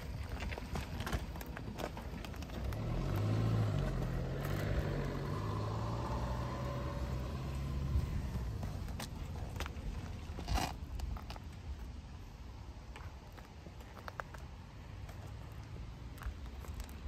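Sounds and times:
vehicle engine running: 0:01.7 - 0:09.7.

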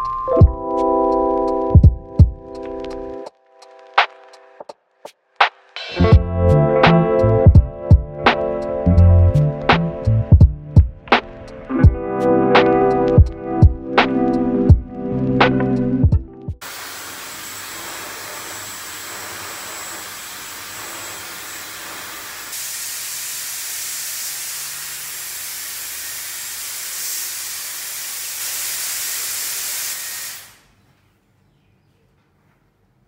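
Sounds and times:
hair dryer blowing: 0:16.6 - 0:30.6.

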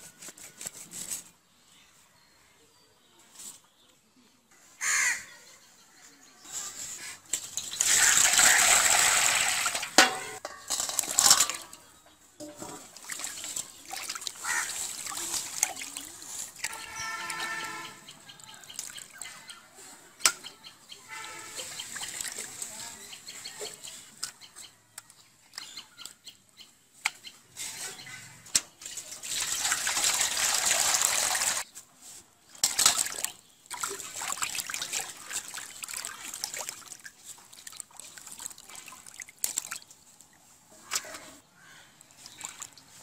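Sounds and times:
water splashing in a steel bowl: 0:07.3 - 0:17.6, 0:21.1 - 0:22.8, 0:28.8 - 0:31.6, 0:32.6 - 0:40.2, 0:42.0 - 0:43.0
water pouring: 0:07.6 - 0:11.8, 0:12.6 - 0:17.6, 0:28.9 - 0:31.6, 0:32.6 - 0:40.0.

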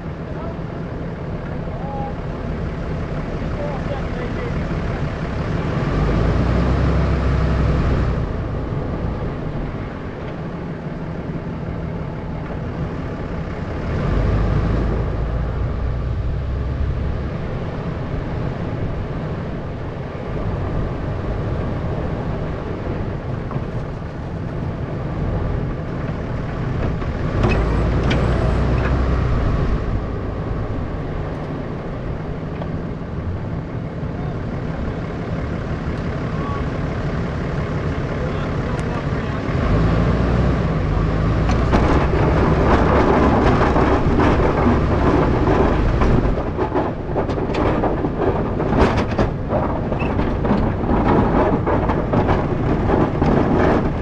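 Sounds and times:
truck engine running: 0:00.0 - 0:54.0.

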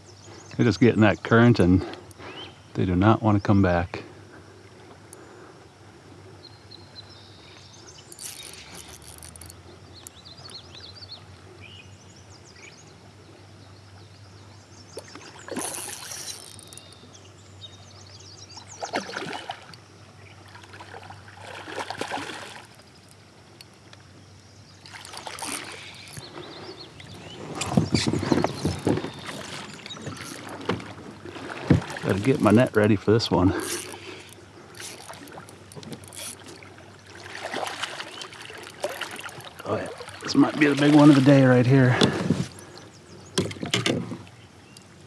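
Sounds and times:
fish splashing in water: 0:15.0 - 0:17.1, 0:18.6 - 0:19.8, 0:20.4 - 0:22.9, 0:24.8 - 0:26.5, 0:27.2 - 0:32.6, 0:33.5 - 0:42.6.

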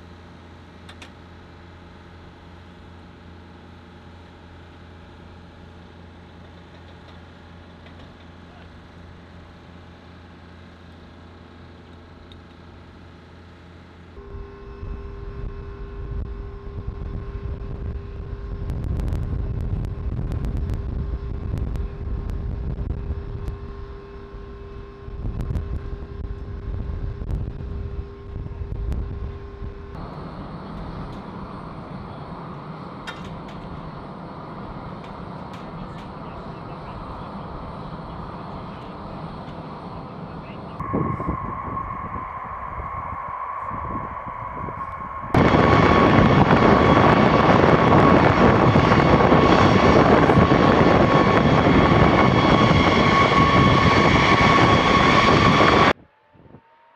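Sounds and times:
ground equipment humming: 0:00.0 - 0:56.9
uneven rumble with whine: 0:00.0 - 0:56.9.

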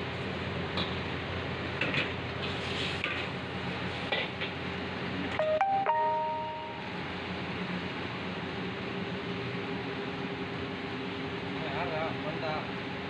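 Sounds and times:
gas burner rushing: 0:01.7 - 0:05.3
electronic chime rising notes: 0:05.4 - 0:07.0.

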